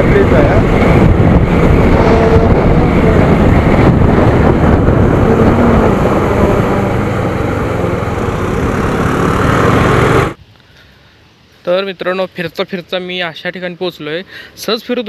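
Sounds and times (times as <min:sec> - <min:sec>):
motorcycle engine: 0:00.0 - 0:10.4
wind rushing: 0:00.0 - 0:10.4.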